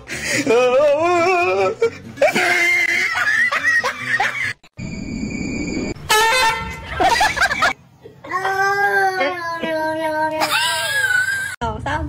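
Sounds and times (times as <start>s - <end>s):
person laughing and giggling: 0.0s - 4.6s, 6.9s - 8.6s.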